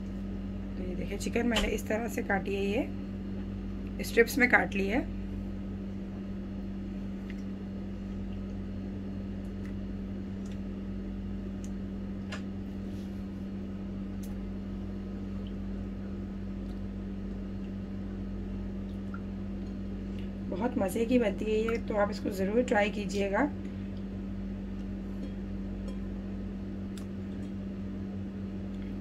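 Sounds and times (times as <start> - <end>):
machine hum: 0.0 - 29.0
soft clicks and splats: 7.2 - 7.6, 9.4 - 10.7, 11.6 - 12.5, 18.8 - 20.4, 26.9 - 27.6.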